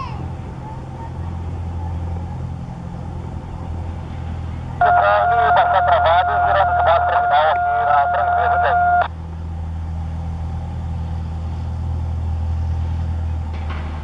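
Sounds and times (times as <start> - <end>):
steady low drone: 0.0 - 14.0
garbled radio voice: 4.8 - 9.1
radio whistle tone: 4.8 - 9.1.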